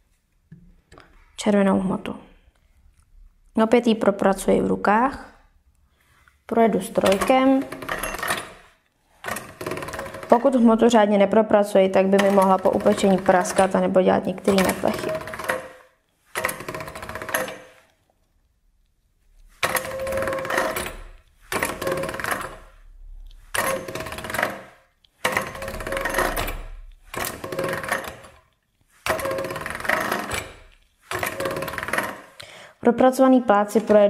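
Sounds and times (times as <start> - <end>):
pasta machine gears clattering: 6.7 - 10.8, 12.0 - 17.9, 19.5 - 32.4.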